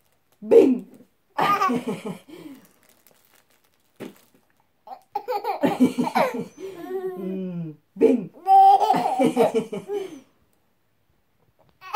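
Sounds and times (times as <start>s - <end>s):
baby laughing: 4.9s - 7.3s, 8.4s - 10.2s.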